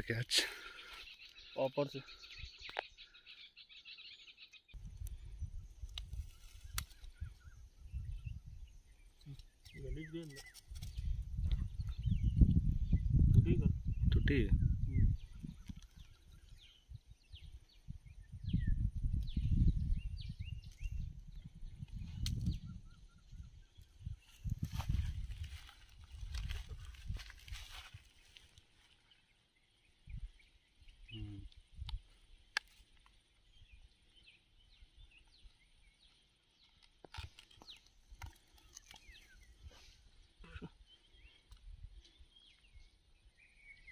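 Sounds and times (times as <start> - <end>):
small birds chirping: 0.0 - 43.9
wind rumble on microphone: 4.8 - 9.0, 10.6 - 28.0.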